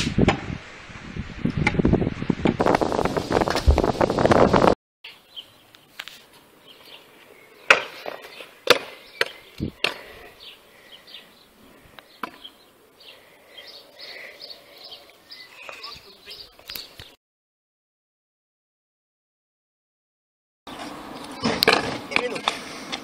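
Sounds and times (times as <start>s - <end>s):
birds chirping: 5.1s - 17.2s, 20.7s - 22.9s.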